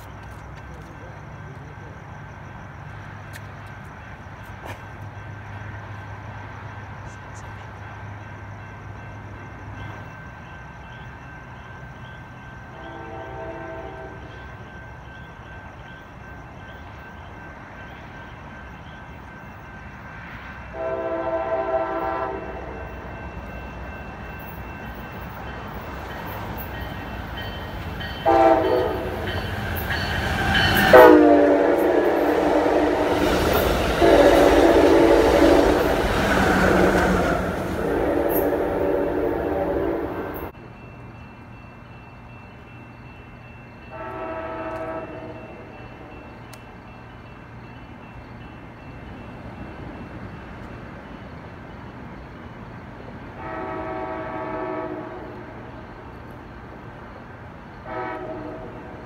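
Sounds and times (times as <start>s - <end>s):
train rumble: 0.0s - 59.0s
locomotive horn blasts: 12.7s - 14.3s, 20.7s - 22.9s, 28.2s - 29.8s, 30.7s - 33.3s, 33.9s - 40.5s, 43.9s - 45.7s, 53.4s - 55.5s, 57.8s - 59.0s.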